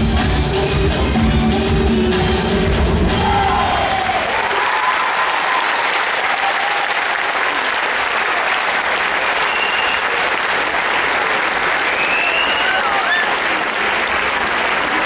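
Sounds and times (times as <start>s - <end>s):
audience applauding: 3.6s - 15.0s.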